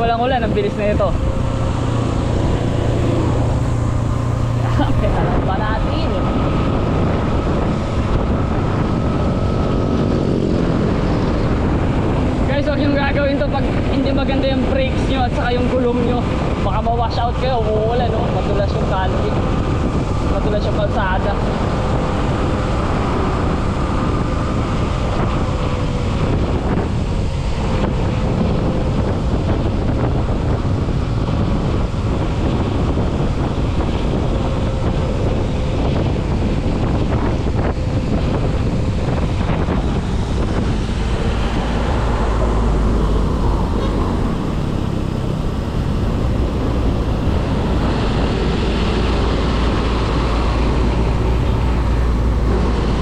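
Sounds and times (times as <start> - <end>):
wind buffeting microphone: 0.0 - 53.0
tyre noise on wet road: 18.1 - 53.0.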